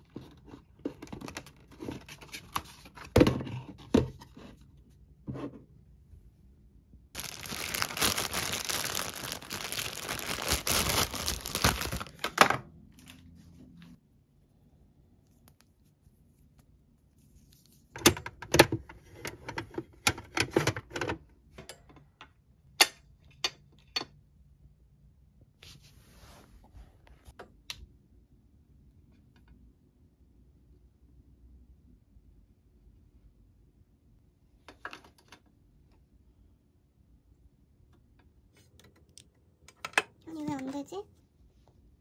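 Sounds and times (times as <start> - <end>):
rustling and tearing: 7.2 - 12.4.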